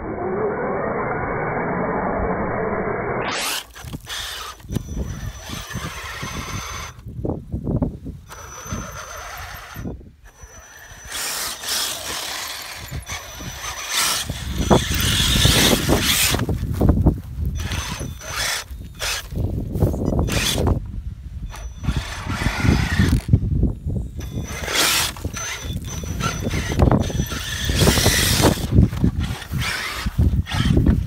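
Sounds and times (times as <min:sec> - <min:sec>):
electric motor whining: 0:00.0 - 0:07.2, 0:08.2 - 0:31.0
tyres churning through mud: 0:08.3 - 0:16.8, 0:24.2 - 0:31.0.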